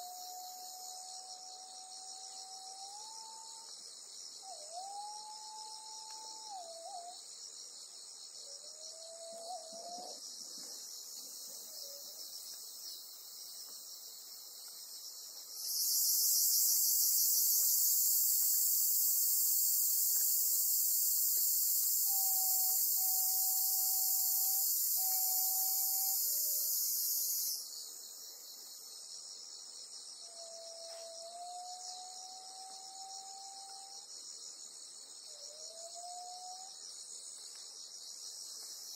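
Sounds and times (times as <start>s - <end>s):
chorus of insect song: 0.0s - 38.9s
cicada buzzing loudly: 15.6s - 27.8s.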